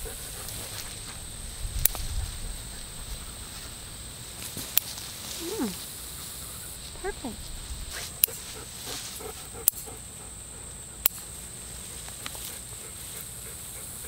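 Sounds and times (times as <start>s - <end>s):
stalks rustling: 0.2s - 9.8s
scissors snipping stems: 8.0s - 8.4s.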